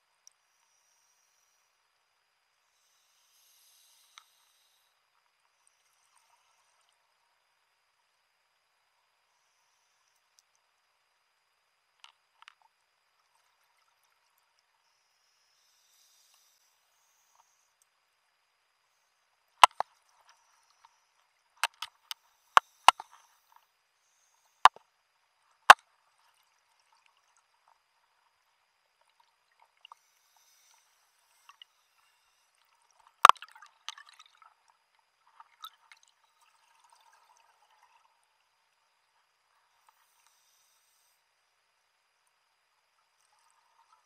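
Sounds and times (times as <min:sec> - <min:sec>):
underwater clicks and knocks: 0:19.6 - 0:19.9, 0:21.6 - 0:23.1.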